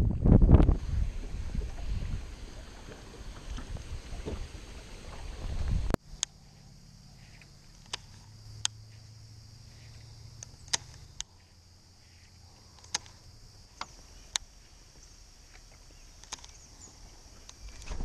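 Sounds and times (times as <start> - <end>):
low hum: 0.0 - 18.0
high insect buzz: 6.0 - 18.0.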